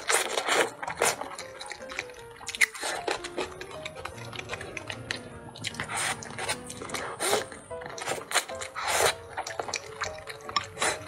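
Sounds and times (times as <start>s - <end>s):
soft background music: 0.0s - 11.0s
wet chewing and mouth clicks: 0.0s - 11.0s.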